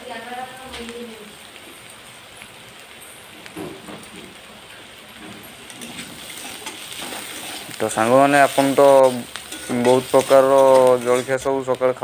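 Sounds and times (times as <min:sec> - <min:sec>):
vegetables sizzling in hot oil: 0:00.0 - 0:12.0
spatula stirring vegetables: 0:03.4 - 0:11.7.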